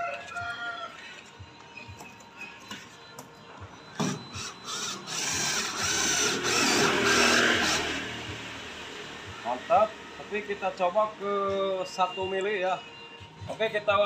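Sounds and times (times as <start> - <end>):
cordless drill cutting steel sheet: 4.0 - 9.2.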